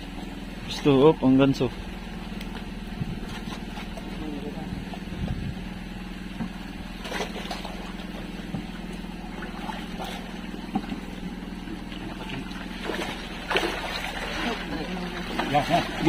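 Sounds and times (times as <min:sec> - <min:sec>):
small boat engine idling: 0:00.0 - 0:16.0
knocks against wooden hull: 0:06.3 - 0:14.1
water splashing: 0:06.5 - 0:16.0.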